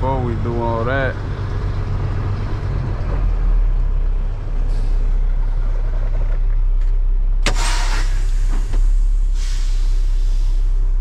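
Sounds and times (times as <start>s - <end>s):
diesel truck engine idling: 0.0s - 11.0s
air brake hiss: 7.5s - 10.8s.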